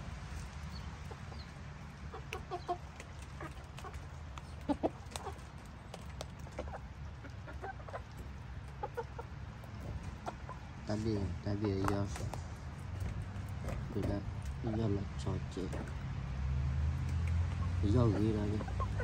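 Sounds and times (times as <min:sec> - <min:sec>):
chickens clucking: 0:00.0 - 0:19.0.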